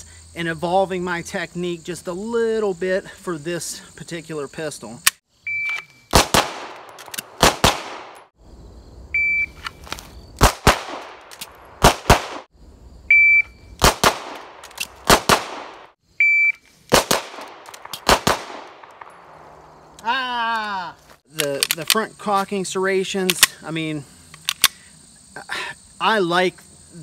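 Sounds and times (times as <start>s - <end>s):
pistol shots: 6.1s - 8.3s, 10.4s - 12.5s, 13.8s - 15.9s, 16.9s - 19.2s.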